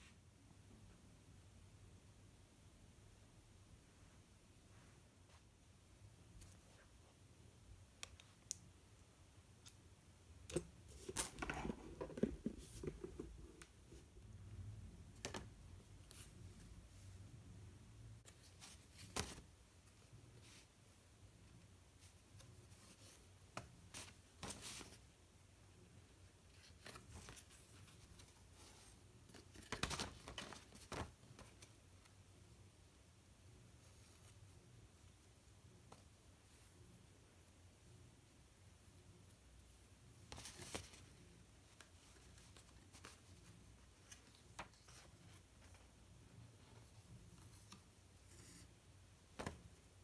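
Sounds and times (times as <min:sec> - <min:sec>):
paper card rustling: 0:10.5 - 0:14.0.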